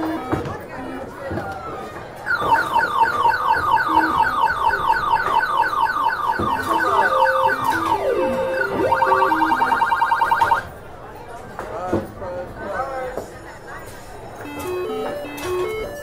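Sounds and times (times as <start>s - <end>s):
stepped tune of lower beeps: 2.3s - 10.6s
rapid warbling beeps: 6.5s - 10.6s.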